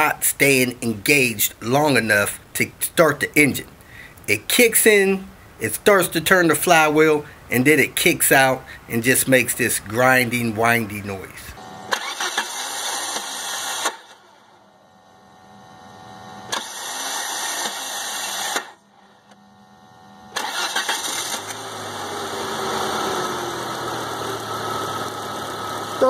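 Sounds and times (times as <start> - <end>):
car starter grinding: 11.8 - 14.2, 16.5 - 18.8, 20.3 - 26.0
car engine idling: 20.4 - 26.0.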